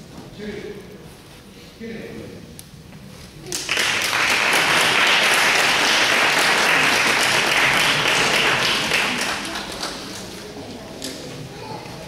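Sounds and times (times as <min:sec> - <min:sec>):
audience applauding: 0:03.5 - 0:10.3.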